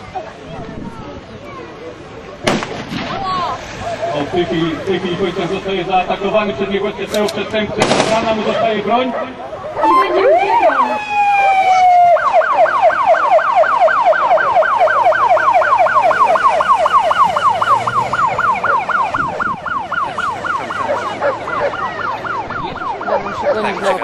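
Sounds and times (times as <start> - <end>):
police siren wail and yelp: 8.4 - 24.0.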